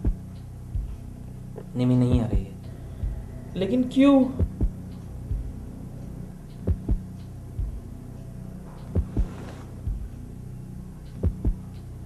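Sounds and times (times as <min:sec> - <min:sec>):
heartbeat thumps: 0:00.0 - 0:01.2, 0:02.0 - 0:03.5, 0:04.3 - 0:05.8, 0:06.6 - 0:08.0, 0:08.8 - 0:10.3, 0:11.2 - 0:11.7
steady low hum: 0:00.0 - 0:12.0.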